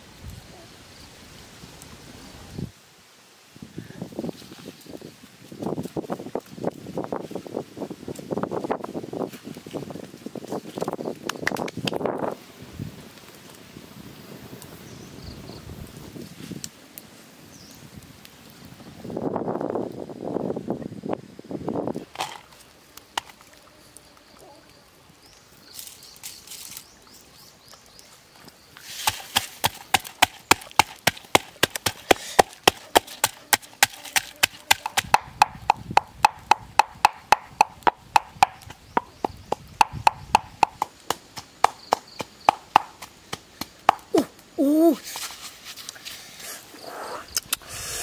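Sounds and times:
pestle pounding in mortar: 0:29.3 - 0:44.0.

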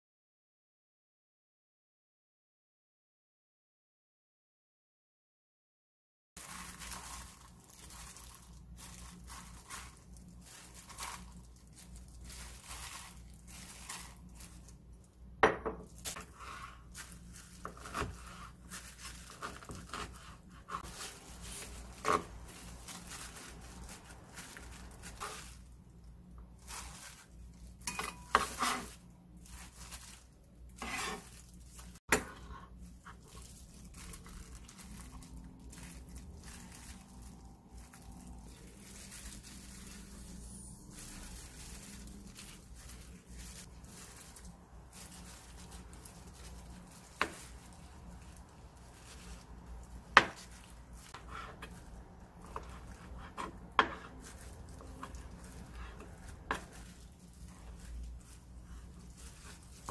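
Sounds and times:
bowls clinking: 0:27.8 - 0:28.5.

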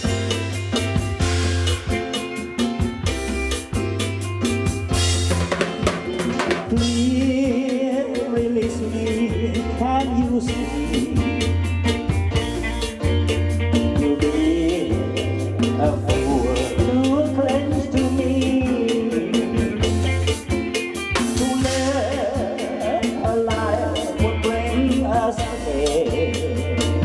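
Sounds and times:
bass guitar: 0:00.0 - 0:27.0
drums keeping a steady beat: 0:00.0 - 0:27.0
electric guitar: 0:00.0 - 0:27.0
keyboard: 0:00.0 - 0:27.0
man singing into a microphone: 0:06.0 - 0:11.5, 0:13.8 - 0:20.3, 0:21.2 - 0:27.0.

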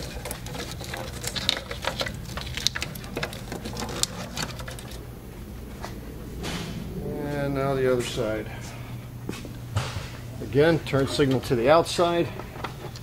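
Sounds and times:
plastic parts clicking and rattling: 0:00.0 - 0:05.0.

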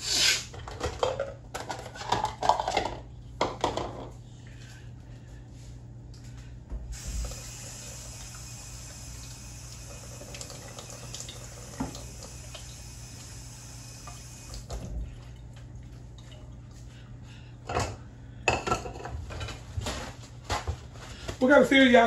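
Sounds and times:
low steady hum: 0:00.5 - 0:22.0
water running from tap: 0:06.9 - 0:16.3.

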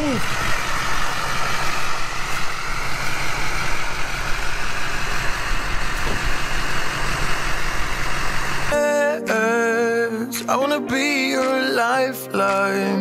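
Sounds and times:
pickup engine running at low revs: 0:00.0 - 0:08.8.

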